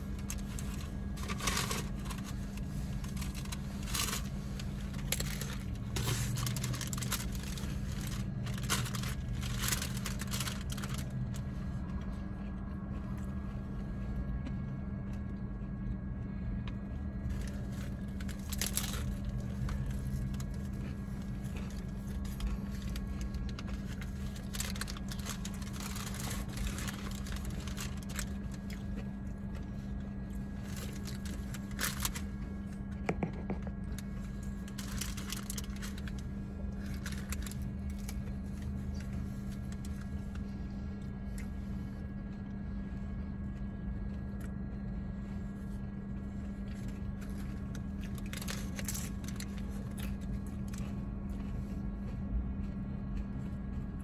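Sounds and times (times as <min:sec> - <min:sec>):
paper wrapper crinkling: 0:00.0 - 0:11.6, 0:17.3 - 0:29.0, 0:29.8 - 0:32.5, 0:33.2 - 0:40.5, 0:46.7 - 0:50.9
car cabin hum: 0:00.0 - 0:41.8
crunching and chewing taco: 0:00.0 - 0:54.0.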